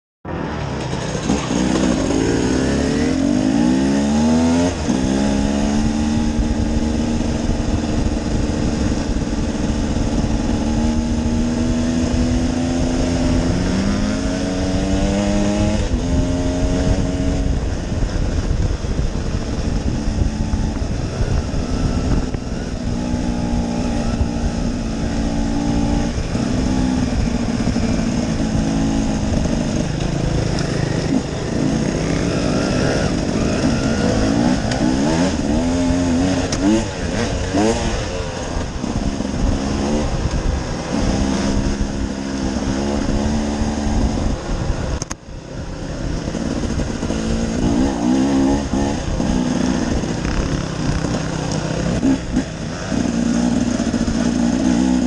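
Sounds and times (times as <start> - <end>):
dirt bike engine revving: 0.3 - 55.0
wind rush on microphone: 0.5 - 55.0.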